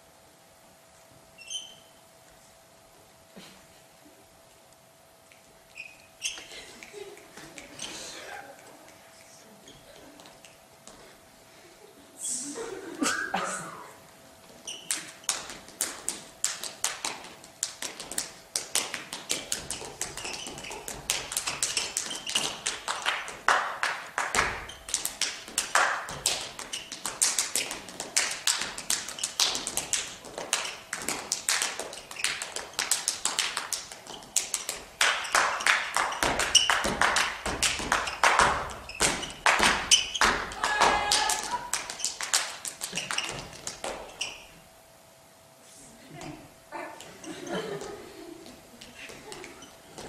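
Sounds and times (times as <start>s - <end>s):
feet tapping on stage floor: 9.7s - 11.2s, 14.4s - 44.4s, 47.0s - 50.0s
heavy foot thumps: 24.4s - 24.8s.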